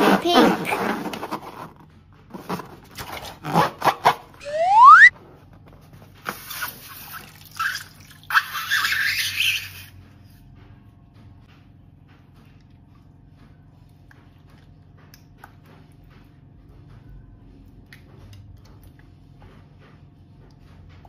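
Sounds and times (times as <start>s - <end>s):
squishy balloon rustles: 0.0s - 4.3s
rubber balloon squeak: 3.2s - 5.1s.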